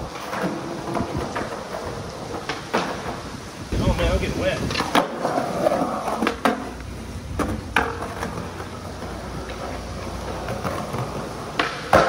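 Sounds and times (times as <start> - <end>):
skateboard clacks: 0.0 - 3.4, 4.6 - 12.0
rain hiss: 0.0 - 12.0
skateboard wheels rolling on concrete: 0.0 - 12.0.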